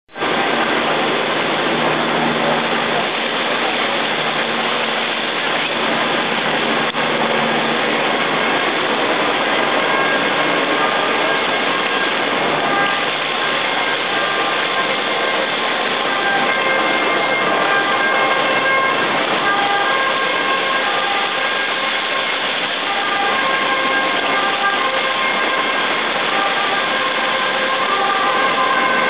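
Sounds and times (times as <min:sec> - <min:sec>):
river floodwater rushing: 0:00.1 - 0:29.0.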